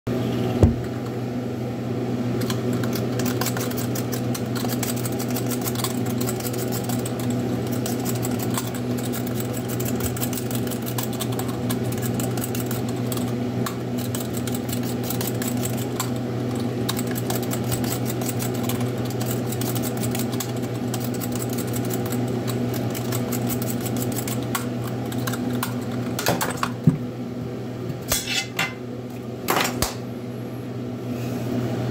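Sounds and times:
steady electrical hum: 0.1 - 31.9
blade scraping peel off potato: 2.4 - 26.0.

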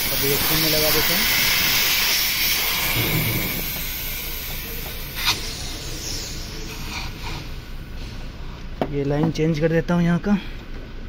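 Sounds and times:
pressure hissing from hoses: 0.0 - 8.4.

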